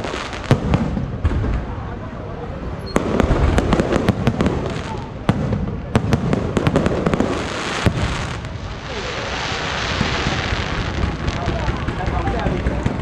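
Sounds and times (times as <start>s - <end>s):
firework crackling hiss: 0.0s - 1.3s, 3.0s - 13.0s
firework bangs and pops: 0.0s - 2.0s, 2.9s - 13.0s.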